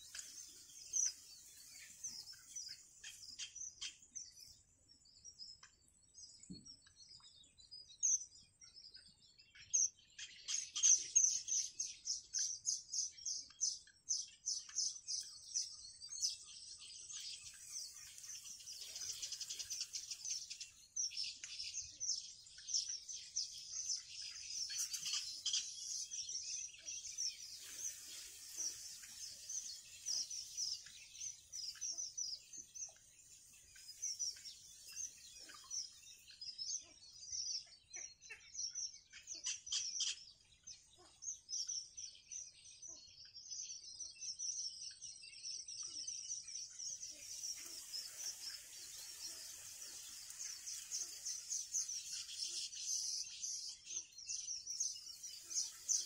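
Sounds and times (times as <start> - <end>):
chicks peeping: 17.2 - 21.7, 22.5 - 36.3, 46.8 - 56.0.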